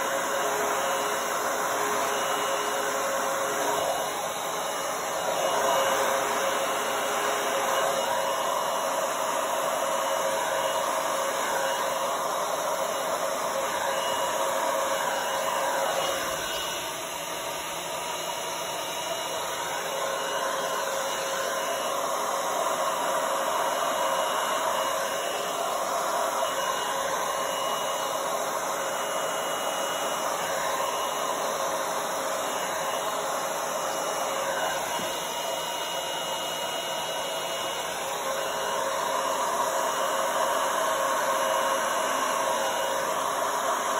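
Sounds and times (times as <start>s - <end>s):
blow dryer rushing air: 0.0s - 43.9s.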